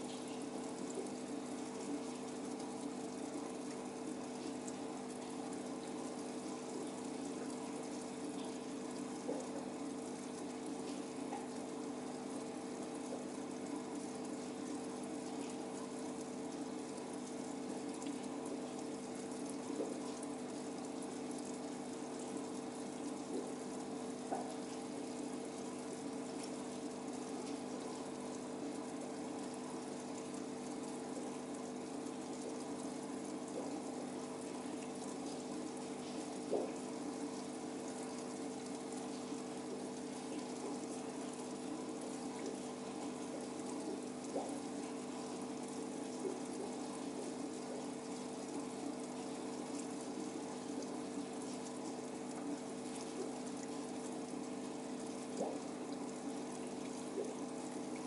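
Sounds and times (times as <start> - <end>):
aquarium pump hum: 0.0 - 58.0
moving water: 0.0 - 58.0
faint ticks: 4.4 - 12.4, 13.0 - 58.0.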